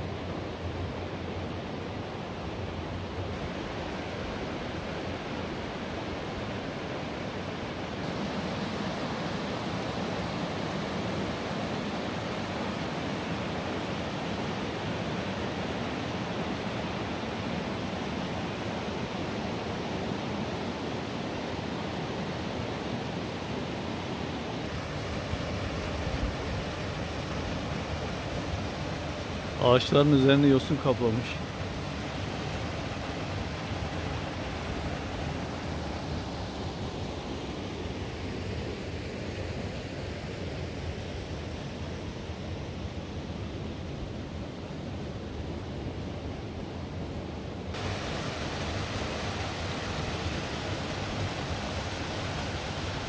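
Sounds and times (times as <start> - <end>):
stream rushing over stones: 3.1 - 38.2, 47.7 - 53.0.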